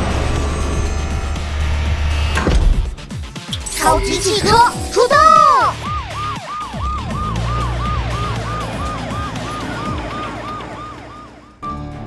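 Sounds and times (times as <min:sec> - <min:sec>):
cartoon police siren yelp: 0:03.6 - 0:11.6.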